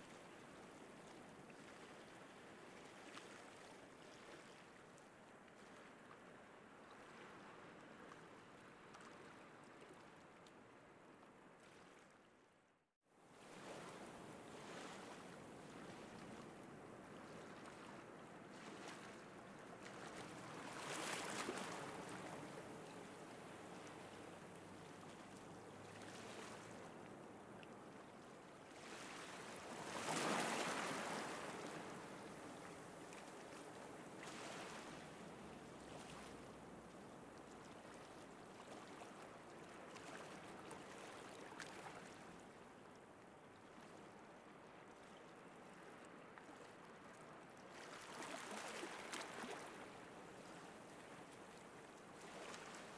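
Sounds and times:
waves washing on shore: 28.7s - 36.5s.

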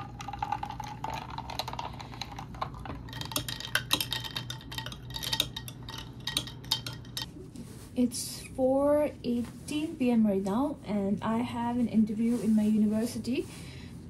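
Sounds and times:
liquid pouring into a glass: 0.0s - 7.0s
metal stirrer clinking on glass: 3.0s - 7.3s.

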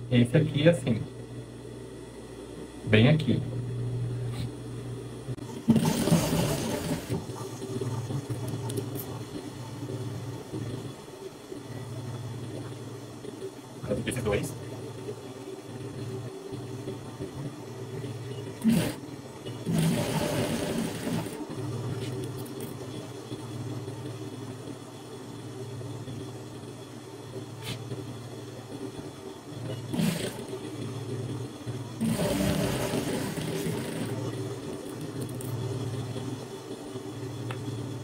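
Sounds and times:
steady low hum: 0.0s - 38.0s
sewing machine stitching: 5.6s - 7.3s, 18.6s - 21.4s, 29.7s - 30.7s, 32.0s - 34.3s.

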